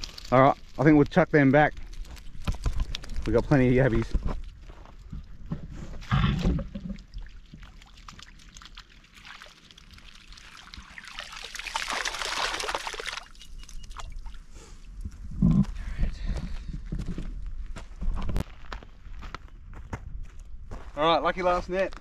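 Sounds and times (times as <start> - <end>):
footsteps on stony ground: 0.0 - 6.9, 15.0 - 22.0
water sloshing and splashing: 4.0 - 14.5.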